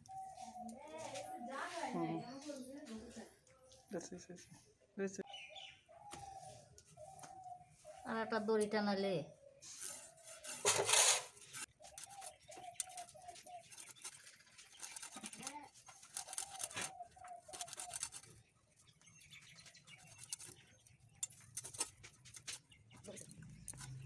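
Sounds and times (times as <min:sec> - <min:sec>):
bird calling: 0:00.0 - 0:02.6, 0:05.2 - 0:08.5, 0:09.4 - 0:22.0
eel scraped against blade: 0:09.7 - 0:13.0.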